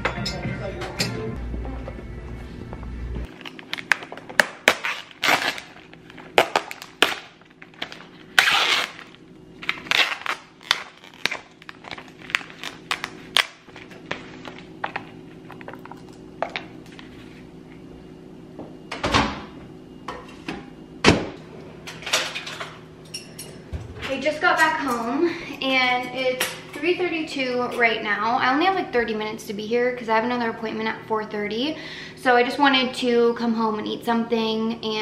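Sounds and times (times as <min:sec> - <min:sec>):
plastic tray film crinkling: 0:08.8 - 0:14.7.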